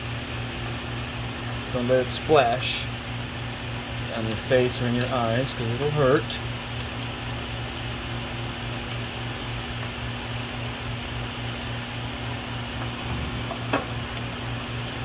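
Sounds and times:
machine hum with low throb: 0:00.0 - 0:15.0.

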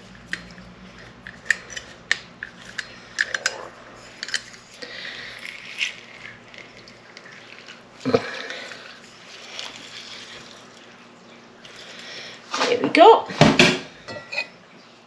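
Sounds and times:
lemon squishing: 0:05.0 - 0:11.1.

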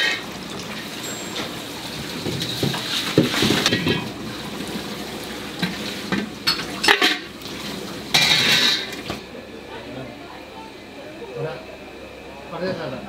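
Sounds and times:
dishes and pans clinking: 0:01.0 - 0:04.2, 0:05.6 - 0:07.3, 0:08.1 - 0:09.2.

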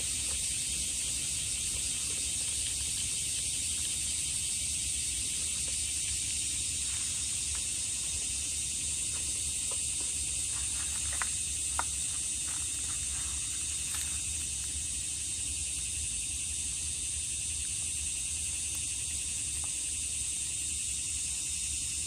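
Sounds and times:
insects hissing: 0:00.0 - 0:22.0.

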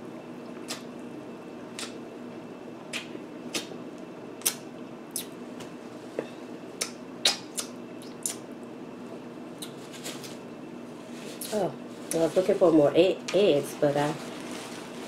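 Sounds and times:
wet lip smacks: 0:04.4 - 0:05.3, 0:06.8 - 0:08.4.

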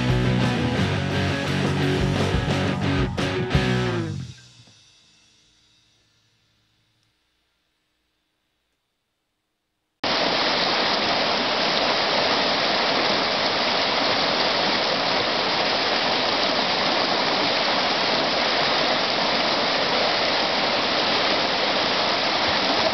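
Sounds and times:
water rushing over rocks: 0:10.0 - 0:22.9.

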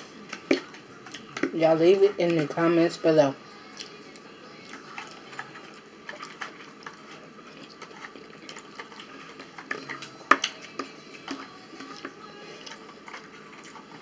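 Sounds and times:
fork scraping plastic tray: 0:04.7 - 0:14.0.

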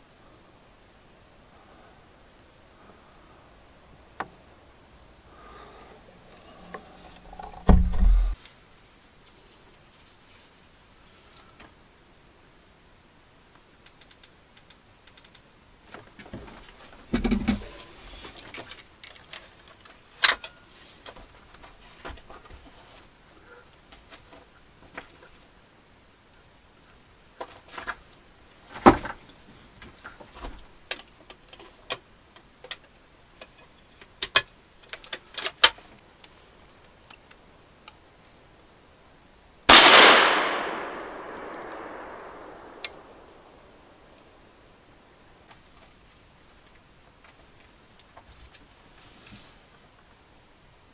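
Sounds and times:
gun and gear handling clicks: 0:39.7 - 0:43.4
loud gunshot echoing: 0:39.7 - 0:43.5.

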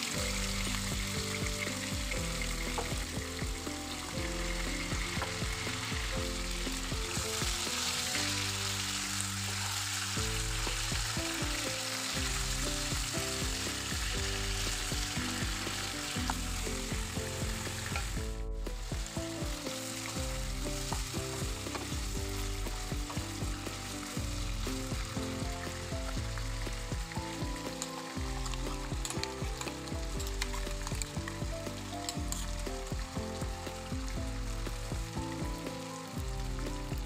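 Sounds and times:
chicken sizzling in hot oil: 0:00.0 - 0:37.0
soft background music: 0:00.0 - 0:37.0
wooden spatula scraping a pan: 0:27.6 - 0:32.9.

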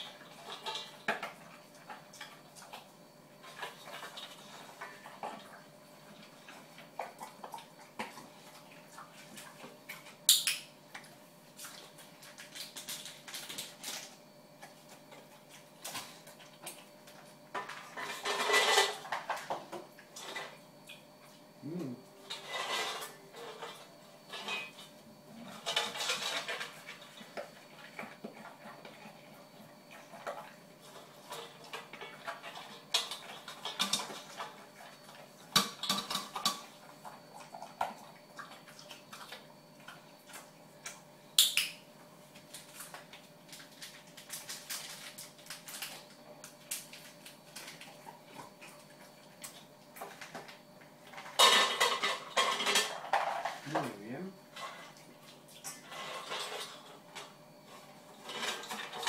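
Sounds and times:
food bowl clinking and scraping: 0:17.6 - 0:19.6, 0:22.2 - 0:27.2, 0:51.1 - 0:53.6, 0:55.8 - 0:59.0.

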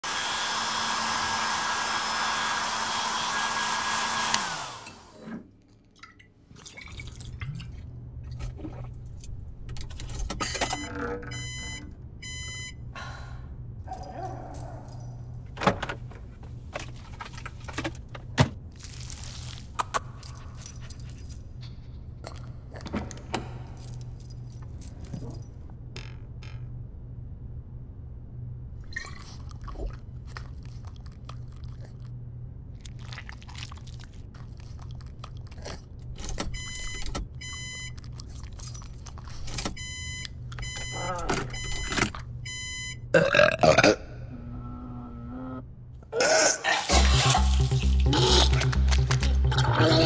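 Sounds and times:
hair dryer running: 0:00.0 - 0:05.2
low steady hum: 0:05.0 - 0:46.2.

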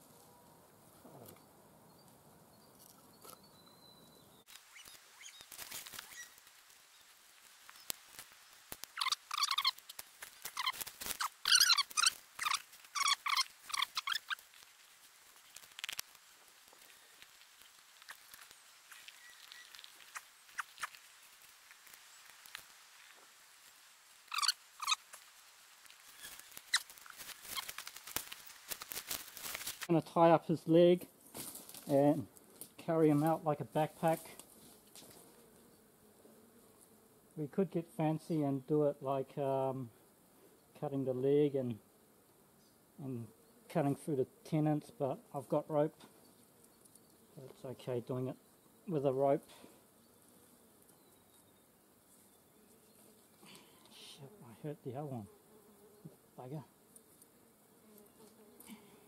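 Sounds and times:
rustling leaf litter: 0:04.5 - 0:29.9
high squeaky calls: 0:04.7 - 0:06.4, 0:08.9 - 0:14.4, 0:24.3 - 0:25.0, 0:26.1 - 0:27.8.

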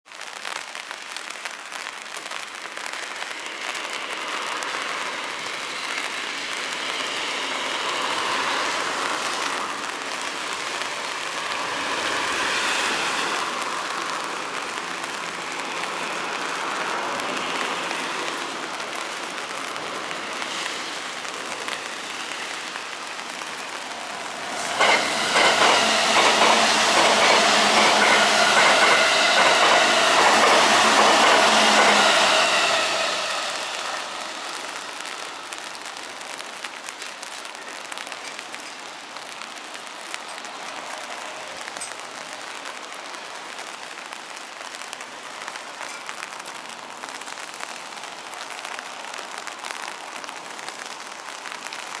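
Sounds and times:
electric train passing: 0:03.3 - 0:36.6.

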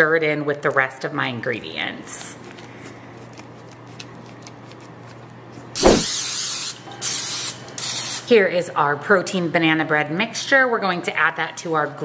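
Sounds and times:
cooking spray hissing: 0:05.8 - 0:08.3.

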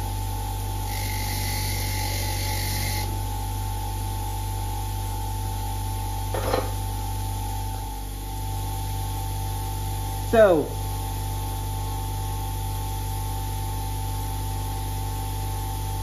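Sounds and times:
bench grinder motor hum: 0:00.0 - 0:04.1.

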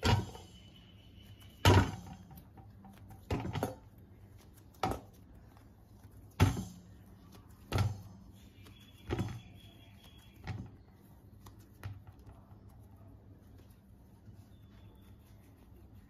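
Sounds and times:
dough thudding into metal bowl: 0:00.0 - 0:00.4, 0:01.6 - 0:03.8, 0:06.4 - 0:07.0, 0:07.6 - 0:08.2.

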